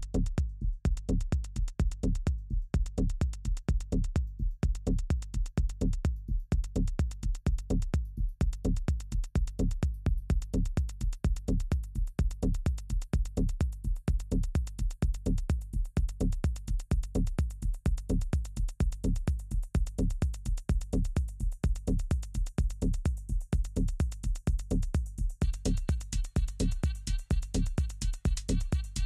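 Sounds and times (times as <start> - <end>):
fast ticking hi-hats: 0.0 - 29.0
kick drum beat: 0.0 - 29.0
electronic dance music: 25.4 - 29.0.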